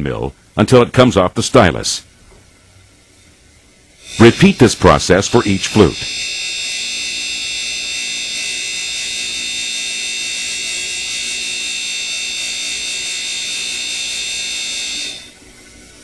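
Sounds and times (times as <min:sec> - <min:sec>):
grinding machine high-pitched whine: 0:04.0 - 0:16.0.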